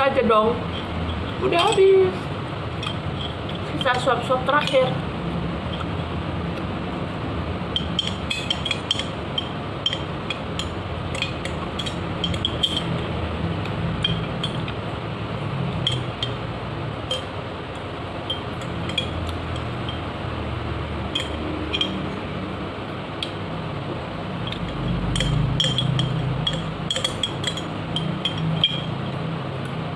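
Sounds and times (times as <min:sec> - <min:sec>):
metal spoon scraping glass: 0:07.7 - 0:13.0, 0:17.0 - 0:17.4, 0:18.2 - 0:20.0, 0:21.1 - 0:22.2, 0:24.4 - 0:29.2.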